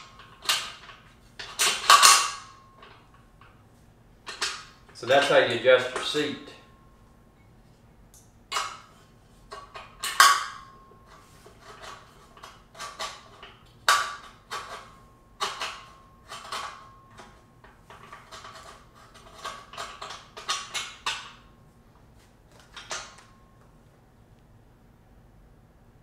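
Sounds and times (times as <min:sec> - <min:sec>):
metal clanks and knocks: 0:00.0 - 0:03.6, 0:04.2 - 0:06.2, 0:08.5 - 0:21.5, 0:22.6 - 0:23.6.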